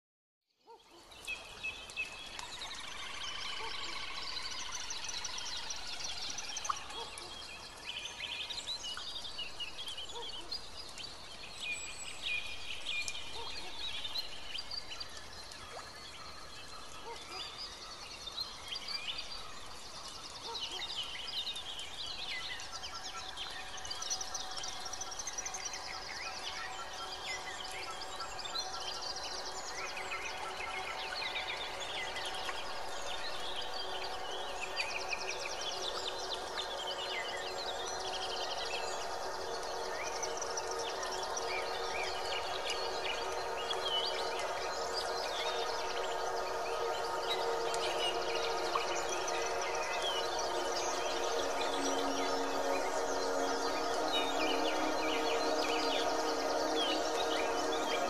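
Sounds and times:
birds chirping and singing: 16.4 - 58.0.

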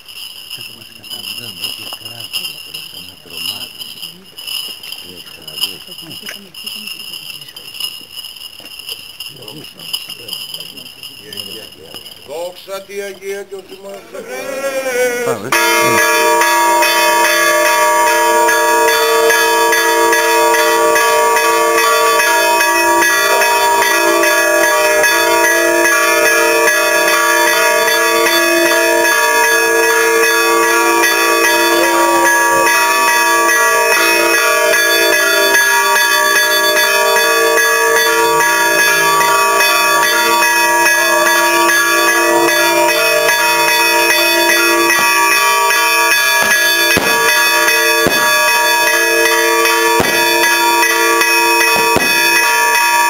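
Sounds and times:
church bells ringing: 0.0 - 8.1, 9.2 - 13.2, 15.4 - 53.0
firecracker bangs: 46.4 - 48.7, 49.9 - 50.6, 51.7 - 52.4.

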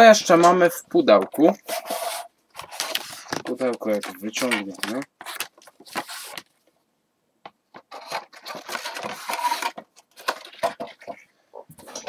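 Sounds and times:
paper and cardboard rustling: 1.3 - 6.6, 7.8 - 12.0.

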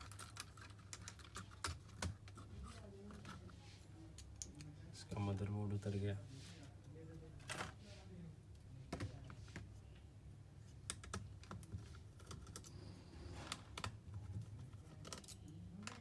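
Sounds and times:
small laptop parts clicking: 0.0 - 3.3, 10.8 - 12.8, 14.8 - 16.0.

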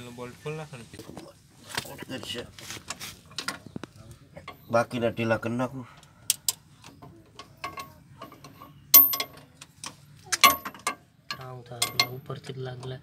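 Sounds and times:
metal tools clicking on bolts: 6.3 - 13.0.

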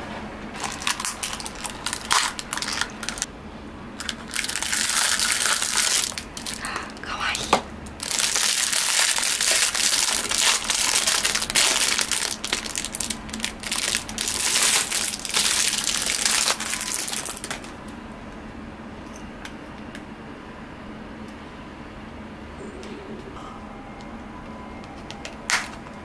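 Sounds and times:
plastic wrapping crinkling: 0.6 - 3.3, 4.0 - 7.2, 8.0 - 17.8.

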